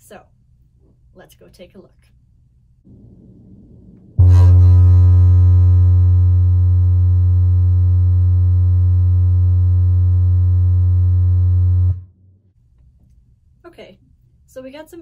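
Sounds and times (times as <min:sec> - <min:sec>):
low steady bass tone: 0:02.9 - 0:12.6.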